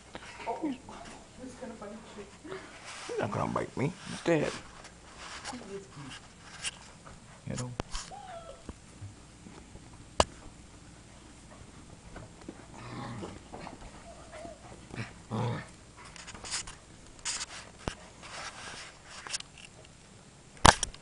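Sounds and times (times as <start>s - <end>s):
puppies whining: 8.0s - 8.8s, 13.2s - 15.2s.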